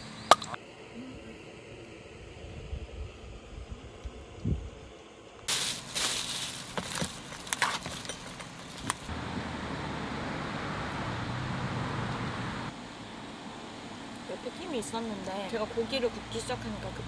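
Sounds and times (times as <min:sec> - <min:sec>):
steady low rumble: 0:00.0 - 0:10.2.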